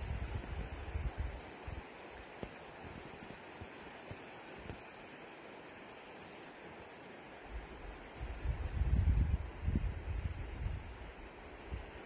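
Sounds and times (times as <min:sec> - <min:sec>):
wind on microphone: 0:00.0 - 0:01.8, 0:08.2 - 0:12.0.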